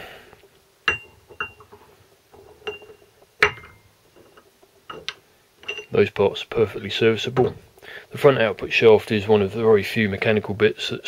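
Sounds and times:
metal parts clinking: 0.9 - 6.0.

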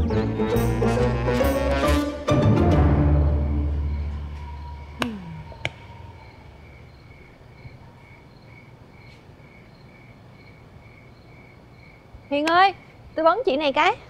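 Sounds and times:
orchestral sting: 0.0 - 4.8
crickets chirping: 2.9 - 14.0.

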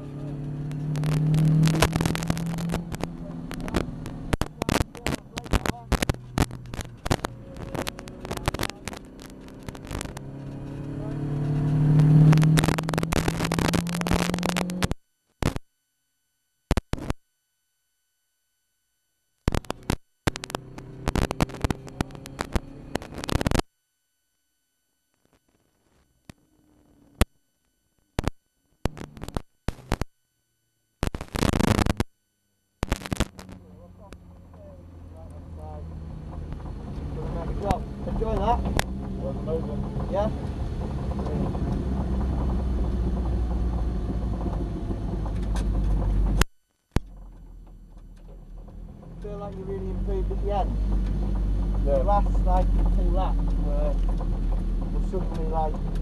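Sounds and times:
race car engine drone: 0.0 - 15.0, 19.6 - 23.6, 32.9 - 56.0
crackling distorted noise: 0.0 - 56.0.

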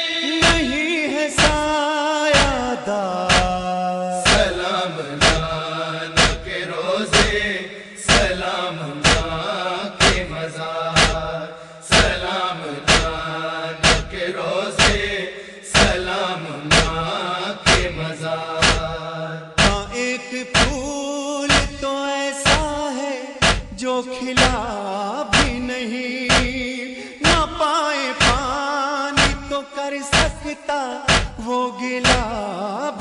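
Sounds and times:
wordless chanted vocals: 0.0 - 33.0
steady sharp strikes: 0.4 - 0.8, 1.4 - 1.8, 2.4 - 2.7, 3.3 - 10.4, 11.0 - 12.3, 12.9 - 20.9, 21.5 - 22.8, 23.4 - 23.8, 24.4 - 24.7, 25.4 - 25.7, 26.3 - 27.5, 28.2 - 28.6, 29.2 - 29.5, 30.1 - 30.5, 31.1 - 31.4, 32.0 - 32.4.

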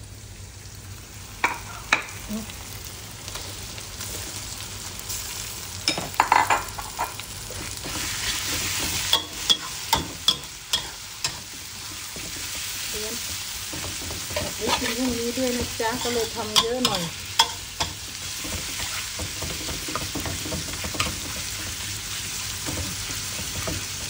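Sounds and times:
food sizzling in hot oil: 0.0 - 24.0
metal spatula scraping a wok: 13.7 - 21.8.

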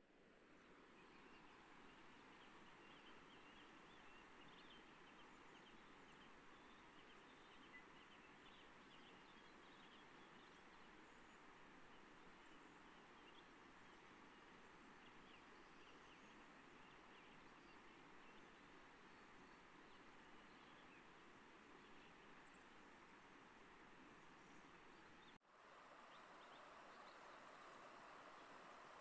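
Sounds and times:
river running over stones: 25.6 - 29.0.

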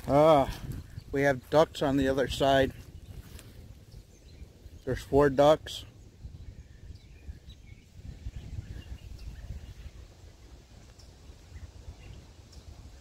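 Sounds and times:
faint bird chirps: 5.8 - 13.0.

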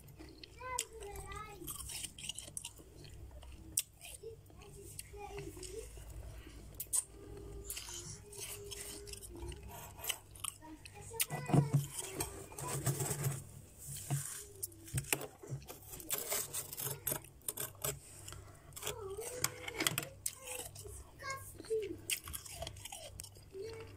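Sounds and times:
frost crunching and crackling: 0.0 - 23.9.

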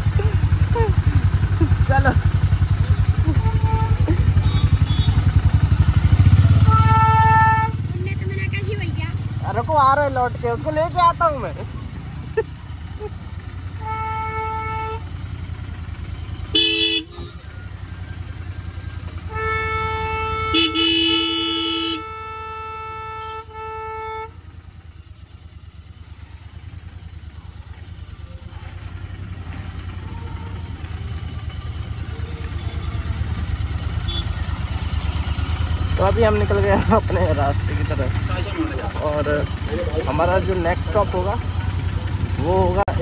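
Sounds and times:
motorcycle engine running: 0.0 - 43.0
vehicle horns honking: 3.2 - 8.5, 13.6 - 15.4, 16.4 - 17.6, 19.1 - 25.2, 29.0 - 36.9.

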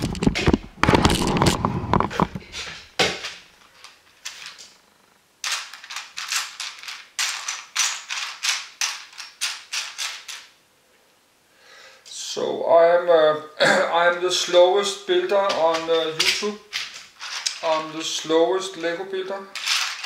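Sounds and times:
plastic pieces clicking and clattering: 3.6 - 4.8, 5.4 - 10.6, 15.3 - 18.0, 19.5 - 20.0.

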